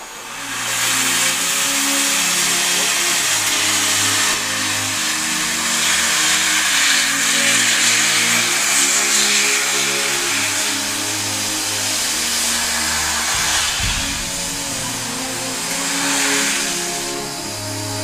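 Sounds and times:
low droning tones: 0.0 - 18.0
steam hissing from drain cocks: 0.0 - 18.0.

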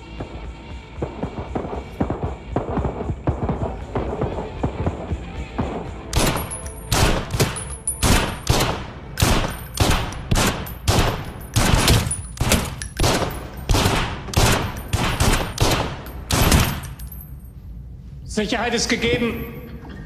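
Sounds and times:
pistol shots ringing indoors: 6.1 - 17.3.

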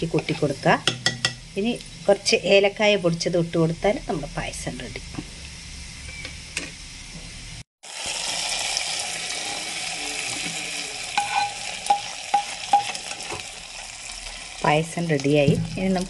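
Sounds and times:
nuts sizzling in hot fat: 0.0 - 16.0
spoon clinking on a steel pot: 11.2 - 13.2.

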